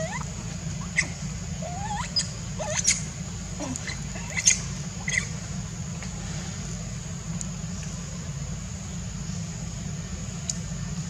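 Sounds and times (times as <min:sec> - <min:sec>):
squeaky animal calls: 0:00.0 - 0:05.3.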